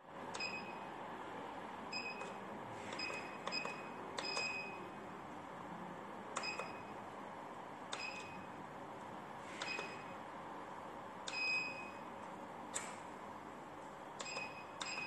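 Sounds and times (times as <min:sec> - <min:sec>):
short high keypad beeps: 0:00.4 - 0:00.8, 0:02.0 - 0:02.4, 0:03.0 - 0:04.8, 0:06.4 - 0:06.9, 0:08.0 - 0:08.5, 0:09.6 - 0:10.1, 0:11.3 - 0:12.0, 0:14.2 - 0:15.0.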